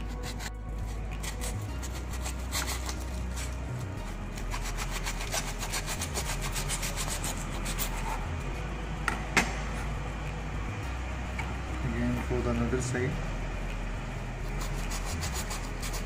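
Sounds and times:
knife sawing through foil: 1.2 - 3.6, 4.4 - 8.1.

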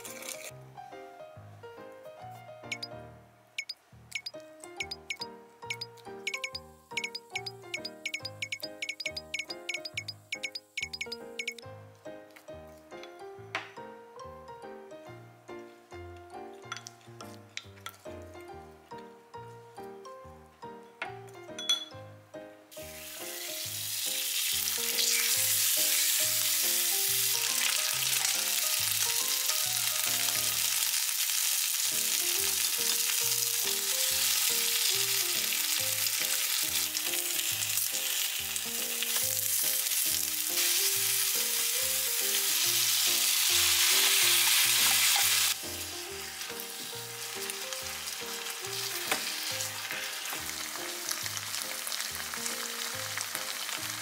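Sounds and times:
chicken sizzling in hot oil: 0.0 - 0.6, 22.7 - 54.0
soft background music: 0.0 - 54.0.

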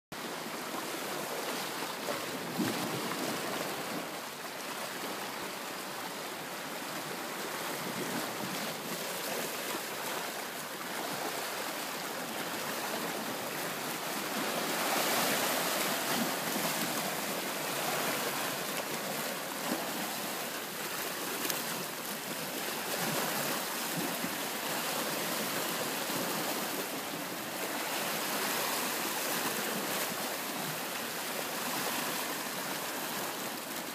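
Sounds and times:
small waves lapping on shore: 0.2 - 33.9.

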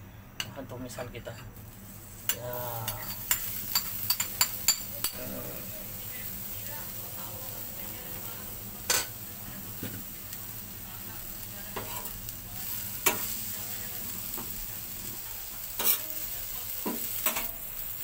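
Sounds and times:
paste sizzling in oil: 1.6 - 18.0
metal spoon scraping griddle: 2.1 - 5.7, 11.8 - 12.2, 15.8 - 16.1.

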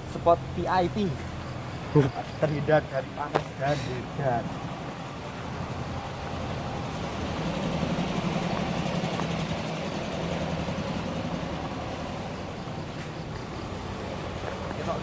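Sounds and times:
traffic hum on bridge overhead: 0.0 - 15.0.

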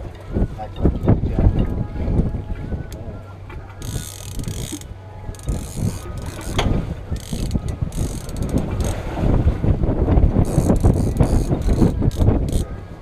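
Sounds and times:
fishing reel ratcheting: 3.8 - 9.0, 10.4 - 12.7.

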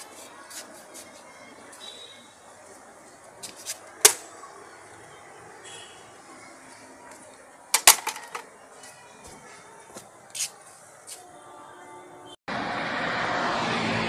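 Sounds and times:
faint steady background noise: 0.0 - 12.4.

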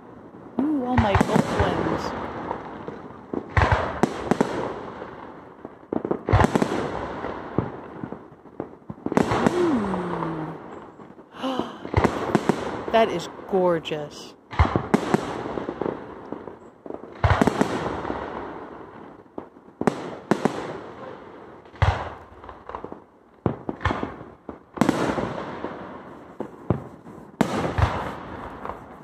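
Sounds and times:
fireworks bursting: 0.0 - 29.0.

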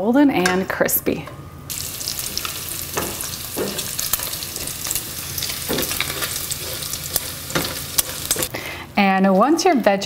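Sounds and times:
bacon sizzling and popping: 1.7 - 8.5
spatula stirring in pan: 1.8 - 8.5.

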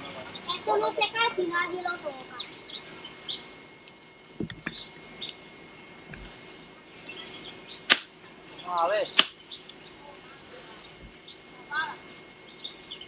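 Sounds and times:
small birds chirping: 0.0 - 13.0
sharp click: 9.2 - 9.8.

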